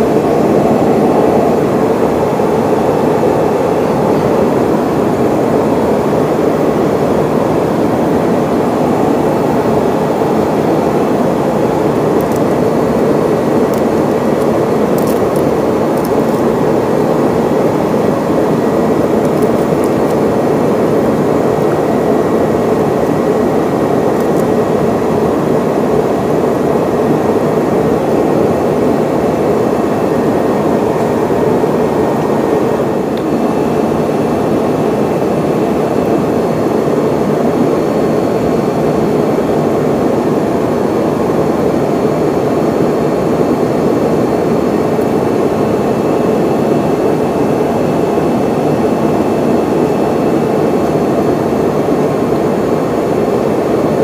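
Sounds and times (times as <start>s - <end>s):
airflow: 0.0s - 41.4s
faint high whine: 0.0s - 54.0s
jet engines rumbling: 0.0s - 54.0s.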